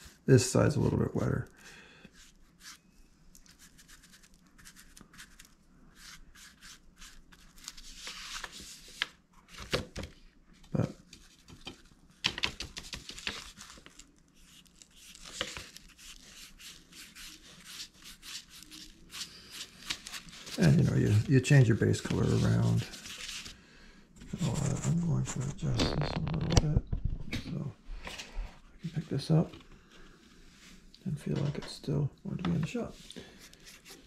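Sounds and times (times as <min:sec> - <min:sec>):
bristle brush scratching: 0:15.8 - 0:19.7.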